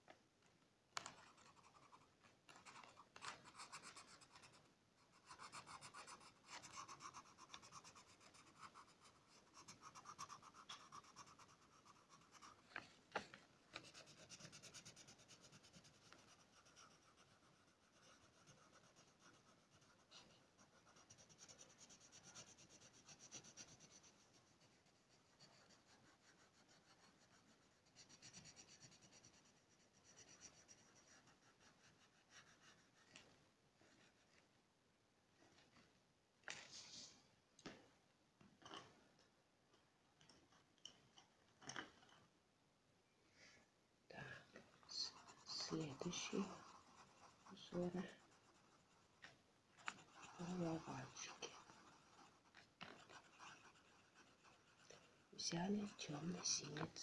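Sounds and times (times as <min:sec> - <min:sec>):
pencil scratching on paper: 0:01.0 - 0:12.9, 0:13.7 - 0:34.4, 0:44.8 - 0:57.0.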